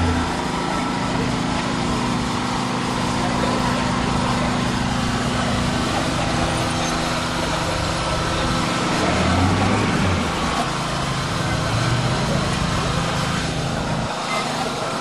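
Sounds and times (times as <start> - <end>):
small gasoline engine running: 0.0 - 15.0.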